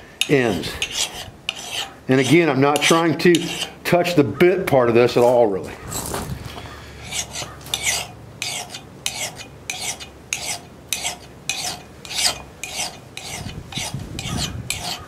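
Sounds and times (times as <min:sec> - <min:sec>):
file rasping on steel: 0:00.2 - 0:03.8, 0:07.0 - 0:15.0.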